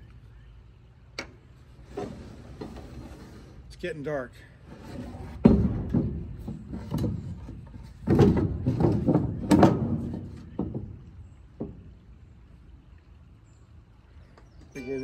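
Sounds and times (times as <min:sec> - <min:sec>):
wooden boards knocking and thudding: 0:05.0 - 0:12.0.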